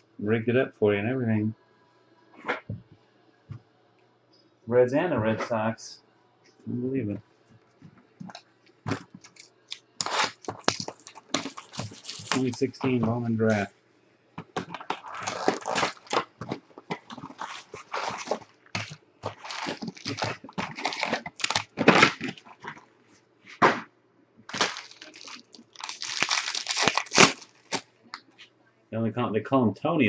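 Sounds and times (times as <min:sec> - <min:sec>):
foil wrappers crinkling: 0:08.2 - 0:13.7, 0:14.4 - 0:22.8, 0:24.5 - 0:28.2
foil packs tearing: 0:08.9 - 0:13.0, 0:14.6 - 0:22.8, 0:24.5 - 0:27.9.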